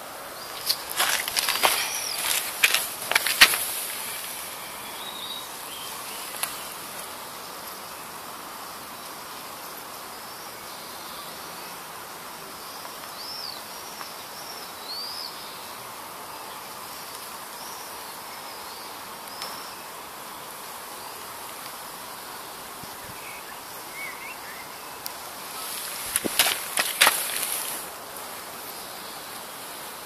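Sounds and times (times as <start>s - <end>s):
background hiss: 0.0s - 30.0s
birds chirping: 0.4s - 7.0s, 23.0s - 27.9s.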